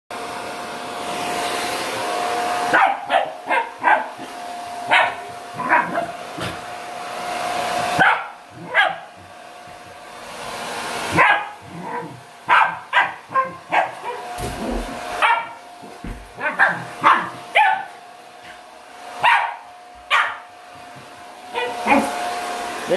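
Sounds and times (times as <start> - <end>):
hair dryer blowing: 0.1 - 22.9
dog barking: 2.7 - 4.3, 4.9 - 6.6, 8.0 - 9.1, 11.1 - 14.3, 15.2 - 15.6, 16.4 - 18.0, 19.2 - 20.5, 21.5 - 22.2.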